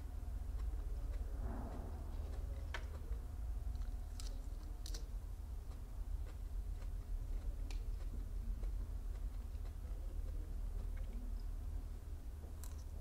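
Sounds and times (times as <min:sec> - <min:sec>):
low steady hum: 0:00.0 - 0:13.0
petals clicking and snapping: 0:02.1 - 0:11.5, 0:12.5 - 0:13.0.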